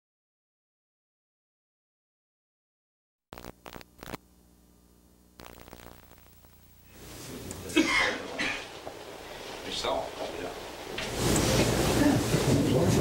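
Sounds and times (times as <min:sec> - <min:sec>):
sharp clicks: 0:03.4 - 0:04.2
faint electrical hum: 0:03.4 - 0:13.0
room noise: 0:03.4 - 0:13.0.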